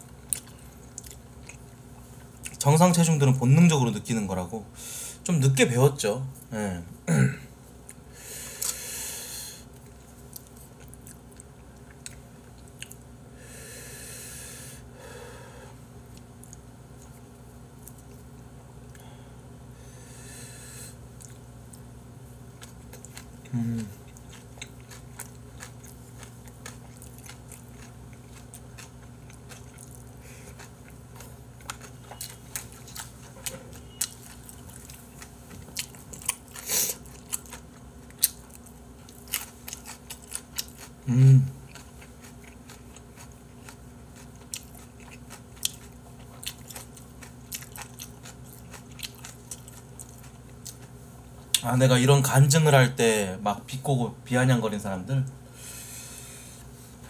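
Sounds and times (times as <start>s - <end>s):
wet chewing and crunching: 0.0s - 3.1s, 9.7s - 13.1s, 16.1s - 19.0s, 21.1s - 21.9s, 22.5s - 51.6s
person humming: 23.5s - 24.0s, 41.1s - 41.6s.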